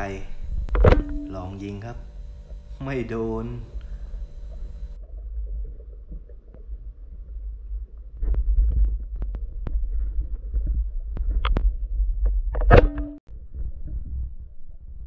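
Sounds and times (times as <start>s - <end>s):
underwater rumble of water: 0.0s - 12.6s, 13.3s - 15.0s
knock with ringing tone: 0.8s - 1.7s.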